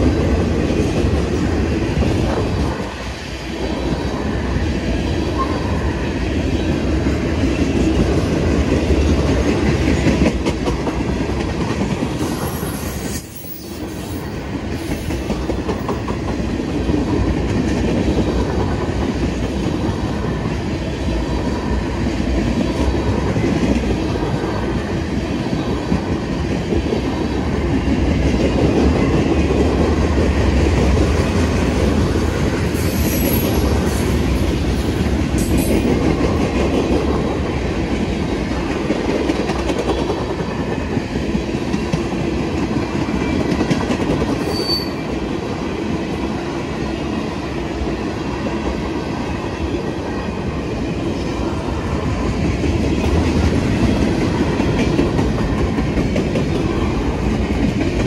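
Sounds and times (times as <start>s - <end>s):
freight train rumbling past: 0.0s - 58.0s
high wheel squeals: 44.4s - 45.0s.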